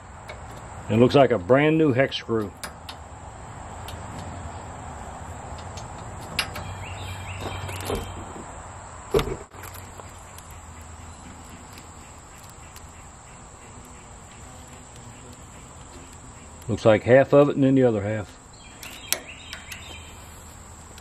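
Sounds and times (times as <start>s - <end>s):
outdoor background hum: 0.0s - 21.0s
hand tools clicking on metal: 18.8s - 20.0s.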